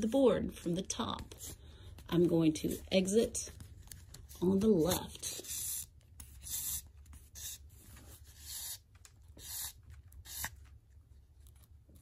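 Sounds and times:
thread drawn through paper hissing: 0:05.3 - 0:10.6.

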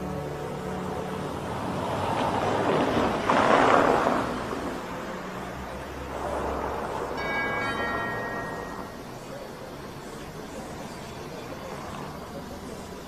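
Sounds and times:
loud rushing noise: 0:00.0 - 0:09.2
bell strike ringing: 0:07.2 - 0:09.2.

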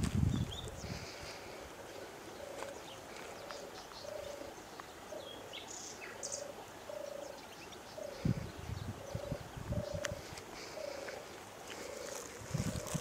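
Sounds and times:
small birds chirping: 0:00.2 - 0:13.0
bird repeating low note: 0:05.1 - 0:11.1.

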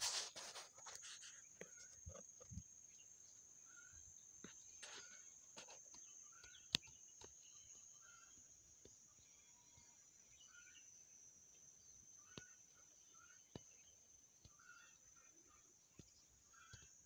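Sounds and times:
faint ticks and rustles: 0:00.0 - 0:10.0.

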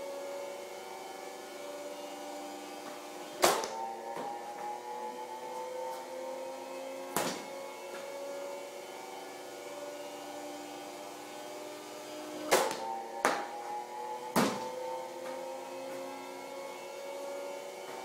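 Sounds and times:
steady multi-tone hum: 0:00.0 - 0:18.0
baseball knocking on hard surface: 0:07.2 - 0:07.5, 0:14.4 - 0:14.6.

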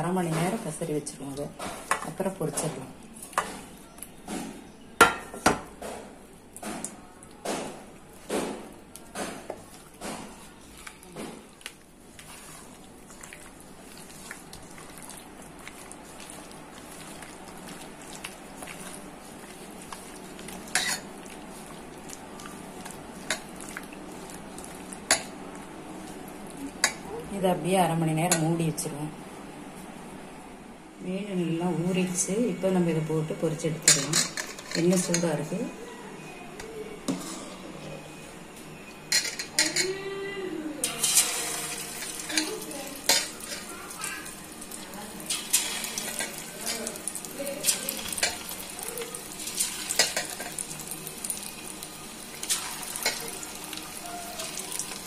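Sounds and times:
hand mixing fish in batter: 0:06.4 - 0:27.1, 0:40.8 - 0:55.0
oil bubbling and sizzling: 0:08.0 - 0:27.2, 0:40.8 - 0:55.0
bursts of sizzle: 0:40.8 - 0:55.0.

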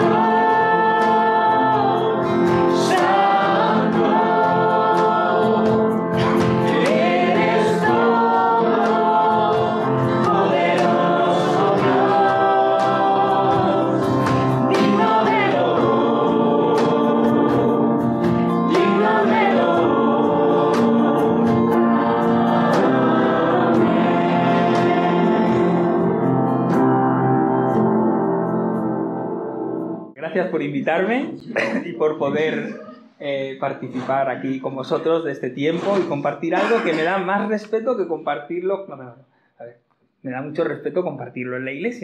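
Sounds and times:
congregation singing: 0:00.0 - 0:30.0, 0:35.7 - 0:37.2
instrumental accompaniment: 0:00.0 - 0:33.0.

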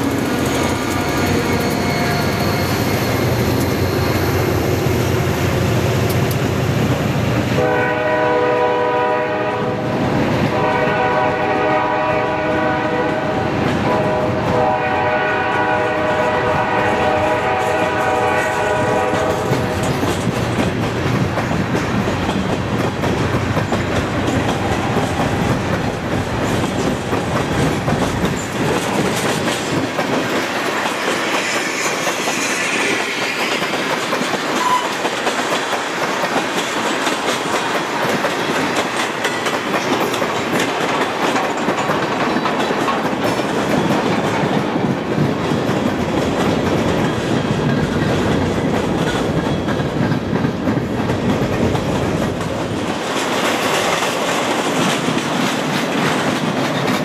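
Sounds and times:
train wheels clicking over rail joints: 0:00.0 - 0:07.6, 0:15.3 - 0:57.0
diesel locomotives rumbling: 0:00.0 - 0:57.0
train air horn blasts: 0:07.5 - 0:09.9, 0:10.5 - 0:19.7, 0:34.6 - 0:35.0.

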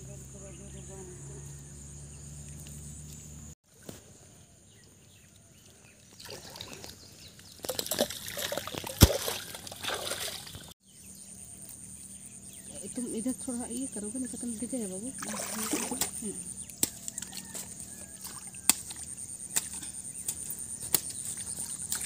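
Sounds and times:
muddy water splashing: 0:06.1 - 0:10.8, 0:13.7 - 0:22.0
clod slapping into water: 0:07.6 - 0:10.6.

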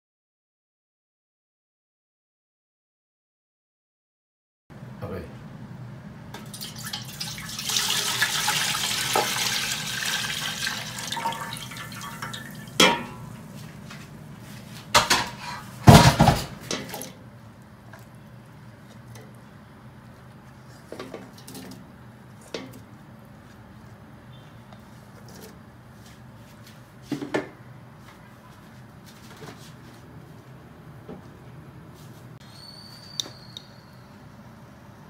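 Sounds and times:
liquid pouring and splashing: 0:06.4 - 0:12.8
metal pots clanking: 0:11.1 - 0:13.4, 0:15.0 - 0:17.2.

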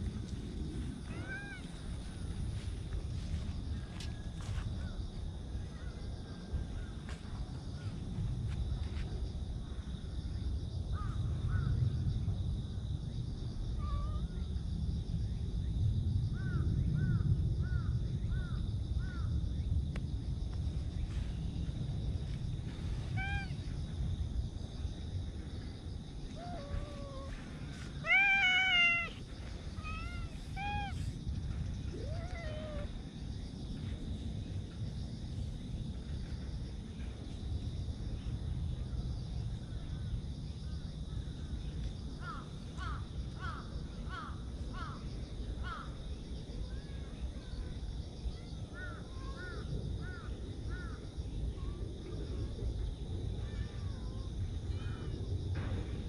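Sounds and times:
high insect drone: 0:00.0 - 0:56.0
steady low rumble: 0:00.0 - 0:56.0
cat meowing: 0:01.1 - 0:01.8, 0:23.1 - 0:23.7, 0:26.4 - 0:27.4, 0:28.0 - 0:31.2, 0:31.9 - 0:32.9.

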